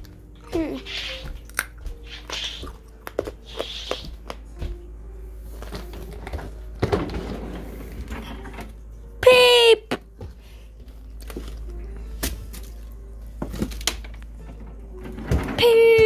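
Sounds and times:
footsteps on wooden floor: 0.0s - 8.0s.

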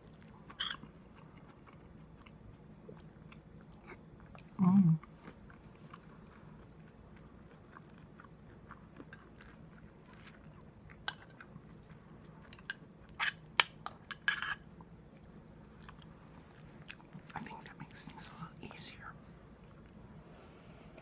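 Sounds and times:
person chewing food: 0.0s - 13.4s, 14.8s - 17.4s.

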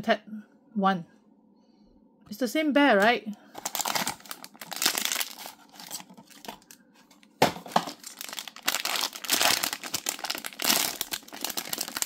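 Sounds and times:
packaging crinkling and rustling: 3.5s - 12.0s.

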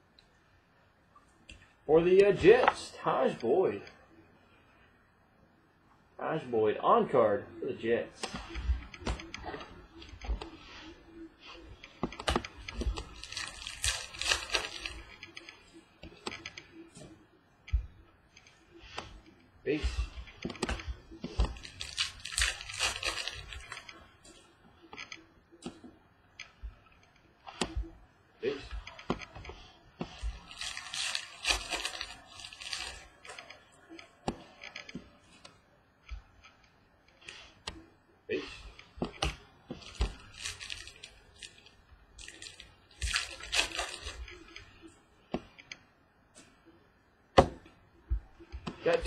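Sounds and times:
wrappers tearing and crinkling: 12.9s - 15.4s, 21.4s - 23.9s, 30.1s - 33.6s, 39.8s - 44.4s.

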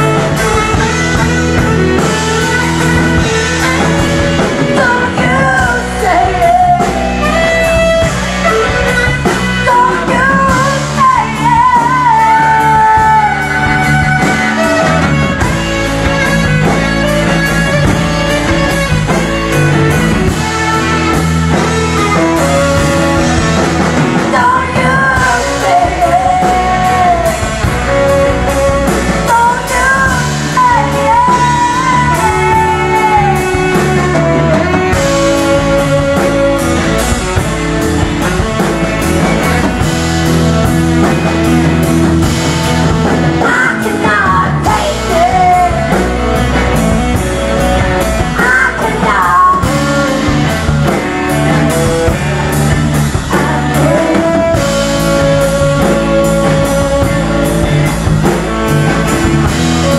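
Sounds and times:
bass guitar: 0.0s - 59.9s
drum kit: 0.0s - 59.9s
electric guitar: 0.0s - 59.9s
saxophone: 0.0s - 59.9s
woman singing: 2.2s - 15.4s, 23.9s - 36.6s, 43.0s - 46.5s, 48.4s - 50.5s, 53.4s - 57.5s.

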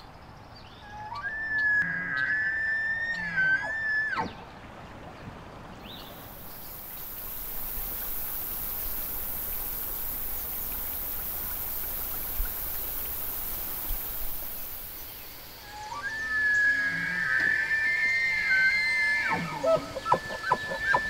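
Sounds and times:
river water rushing: 4.1s - 16.3s.

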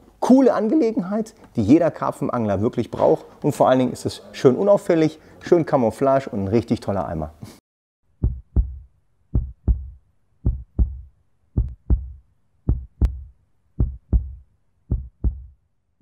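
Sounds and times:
heartbeat thumps: 8.2s - 15.6s.

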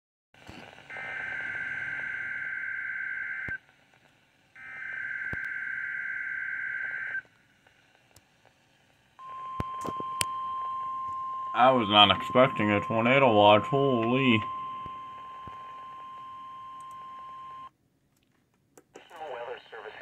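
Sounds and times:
steady alert tone: 11.5s - 15.1s.

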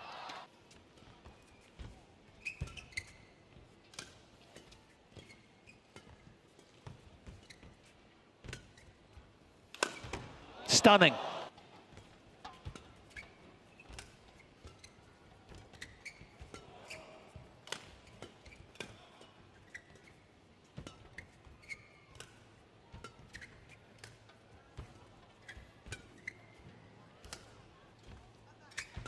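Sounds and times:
shoes squeaking on court: 1.3s - 3.4s, 5.1s - 9.0s, 13.1s - 16.6s, 19.6s - 20.2s, 21.0s - 22.1s, 25.4s - 26.8s.

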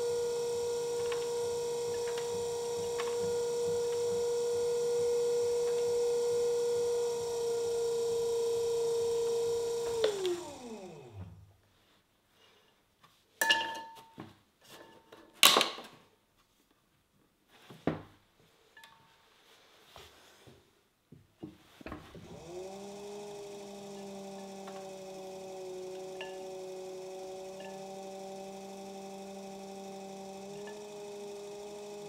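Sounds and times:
pottery wheel motor humming: 0.0s - 11.5s, 22.1s - 32.0s.

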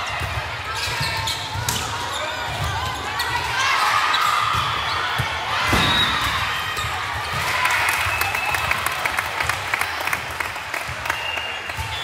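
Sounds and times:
shoes squeaking on court: 0.2s - 3.4s
people clapping: 7.4s - 12.0s.

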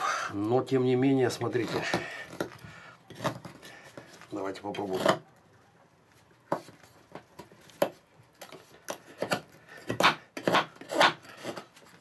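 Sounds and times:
knife scraping dry wood: 1.1s - 5.3s, 7.7s - 12.0s.

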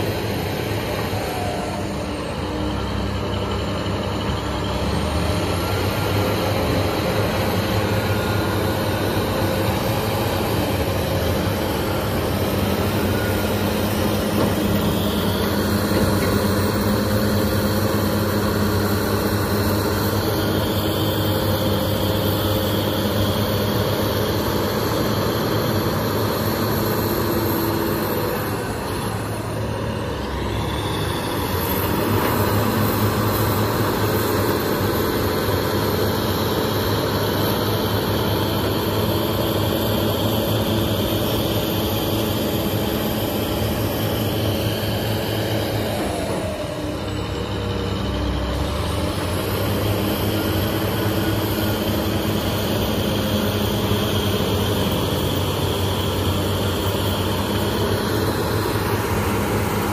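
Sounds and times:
heavy diesel engines working: 0.0s - 59.9s.

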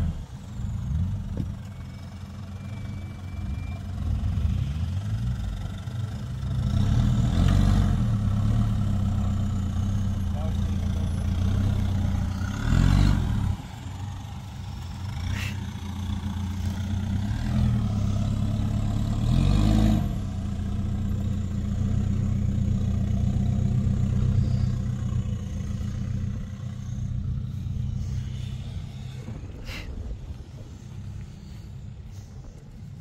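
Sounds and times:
pickup engine running at low revs: 0.0s - 33.0s.

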